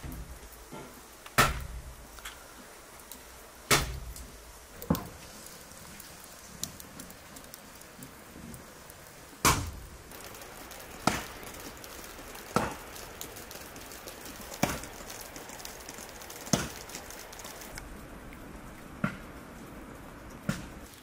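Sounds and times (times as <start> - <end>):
light patter of small ticks: 2.0 - 21.0.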